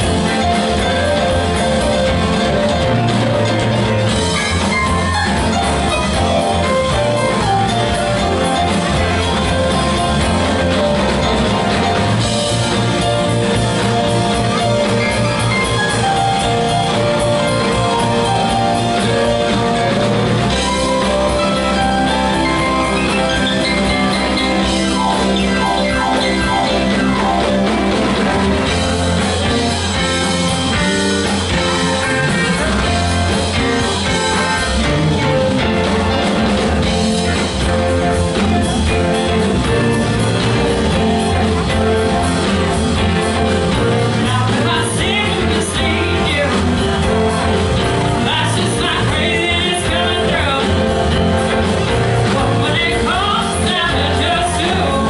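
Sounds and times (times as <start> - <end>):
drums: 0.0 - 55.0
electric bass: 0.0 - 55.0
electric guitars: 0.0 - 55.0
keyboards: 0.0 - 55.0
person singing: 43.8 - 55.0.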